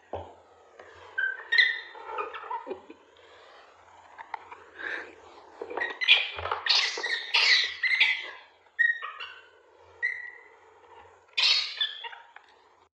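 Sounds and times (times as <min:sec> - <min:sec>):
baby monkeys squealing: 0:01.2 - 0:02.8, 0:05.8 - 0:09.4, 0:10.0 - 0:10.5, 0:11.4 - 0:12.4.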